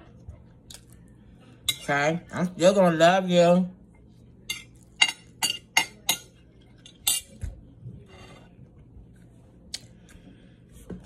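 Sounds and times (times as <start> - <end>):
metal fork clinking on plate: 4.5 - 6.3, 6.9 - 7.4.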